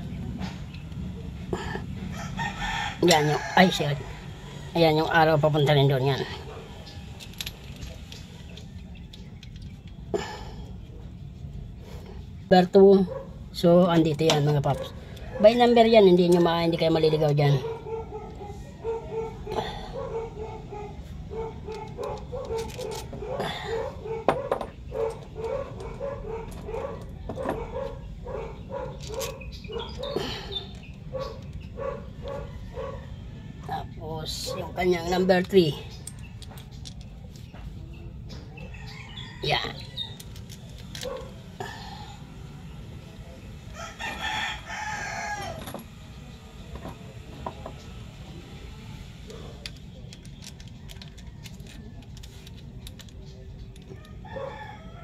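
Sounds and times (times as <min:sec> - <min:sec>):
rooster crowing: 0:02.1 - 0:04.7, 0:32.2 - 0:33.8, 0:38.6 - 0:40.2, 0:43.7 - 0:45.7, 0:54.0 - 0:55.0
dog barking: 0:13.0 - 0:13.4, 0:17.5 - 0:30.3, 0:31.1 - 0:33.2, 0:34.4 - 0:34.8, 0:41.0 - 0:41.4, 0:54.3 - 0:54.6.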